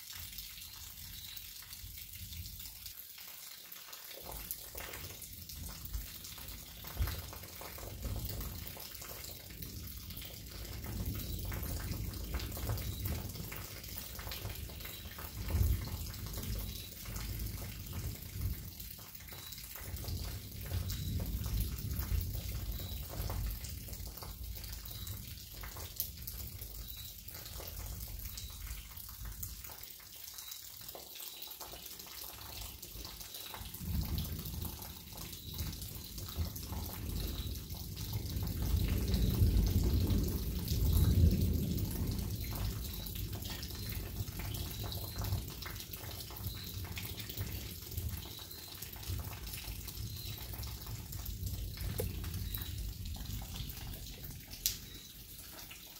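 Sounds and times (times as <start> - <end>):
steady rain falling: 0.0 - 55.9
thunder rumbling: 9.5 - 25.8, 33.8 - 45.7.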